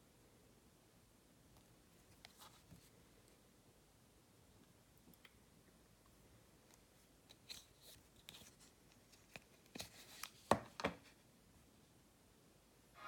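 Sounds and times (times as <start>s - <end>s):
faint clicks and rustles of packaging: 1.5s - 3.4s, 6.0s - 11.2s.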